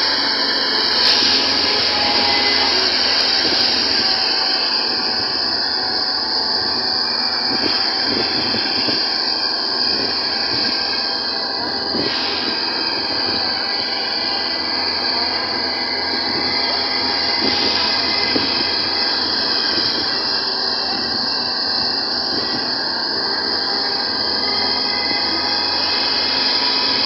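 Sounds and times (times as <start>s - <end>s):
high-pitched hiss: 0.0s - 27.0s
wind: 0.0s - 27.0s.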